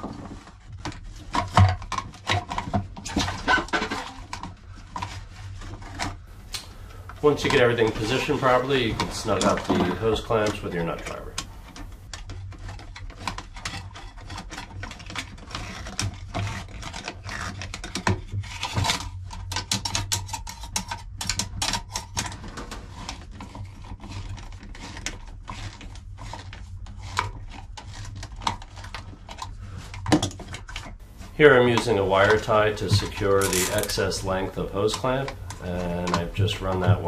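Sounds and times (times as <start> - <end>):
nut driver tightening hose clamp: 31.9 - 34.0.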